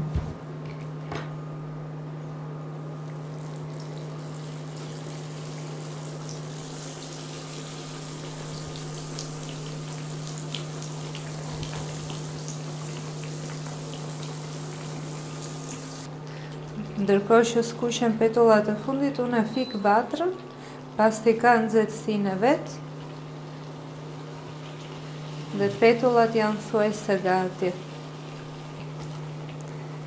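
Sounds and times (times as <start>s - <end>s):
dough sizzling in hot oil: 3.1s - 16.1s, 22.7s - 30.0s.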